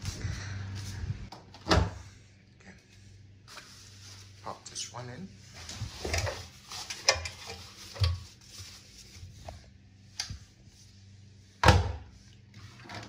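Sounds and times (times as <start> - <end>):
fabric rustling: 3.5 - 4.6.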